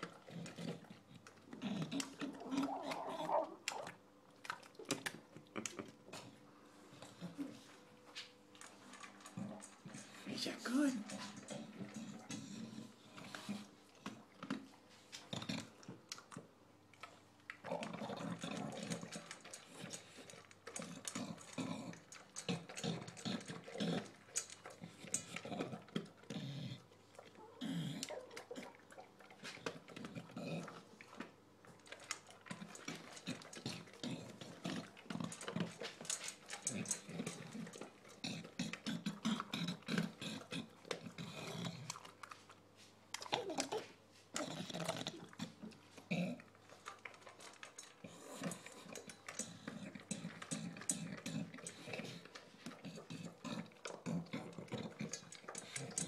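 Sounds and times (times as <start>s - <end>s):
dog grunting and wheezing: 0.0s - 3.9s, 17.7s - 30.9s, 32.6s - 42.1s, 43.2s - 56.0s
dog chewing from metal bowl: 0.0s - 7.6s, 8.2s - 56.0s
kibble clicking against metal bowl: 17.8s - 26.1s, 31.8s - 41.2s, 46.8s - 56.0s.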